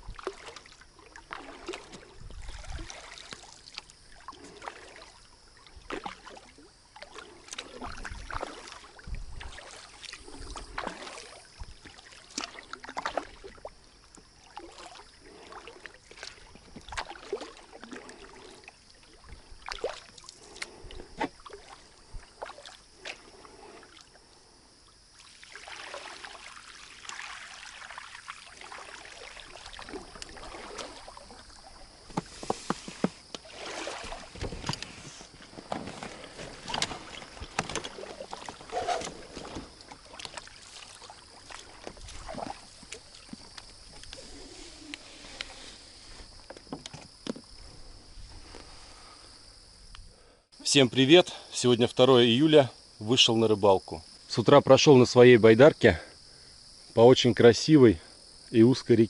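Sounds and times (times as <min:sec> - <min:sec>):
paddle splashing in water: 0:00.0 - 0:24.2, 0:25.1 - 0:49.2
paddle knocking against kayak: 0:32.0 - 0:40.5, 0:46.4 - 0:47.5.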